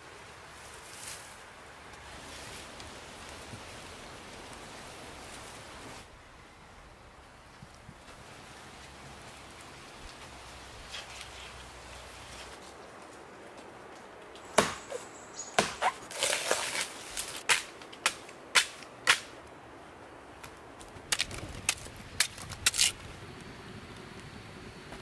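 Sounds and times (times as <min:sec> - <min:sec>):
machete chopping plant trunk: 0:14.5 - 0:15.0, 0:15.6 - 0:19.3.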